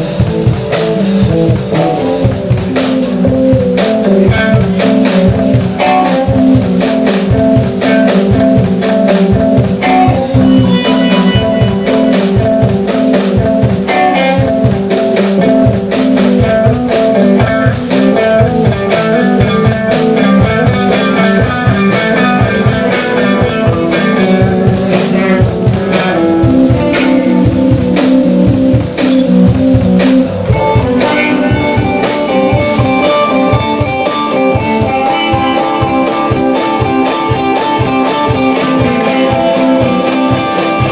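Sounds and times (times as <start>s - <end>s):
drum kit: 0.0s - 40.9s
electric bass: 0.0s - 40.9s
electric guitar: 0.0s - 40.9s.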